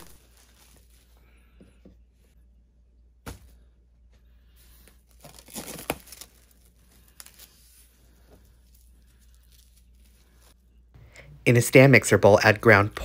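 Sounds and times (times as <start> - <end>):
cling film crinkling: 0.0 - 1.2, 5.1 - 10.6.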